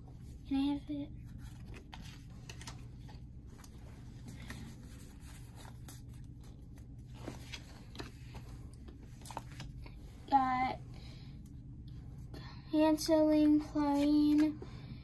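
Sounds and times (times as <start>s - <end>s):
steady low hum: 0.0s - 15.0s
cards rustling: 1.2s - 10.3s, 13.4s - 14.6s.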